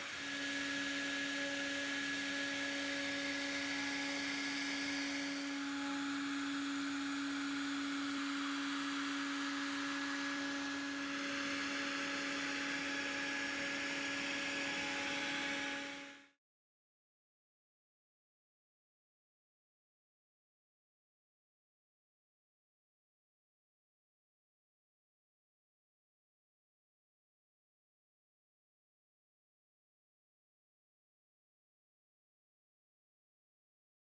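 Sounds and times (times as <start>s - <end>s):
router spindle whine and hiss: 0.0s - 16.3s.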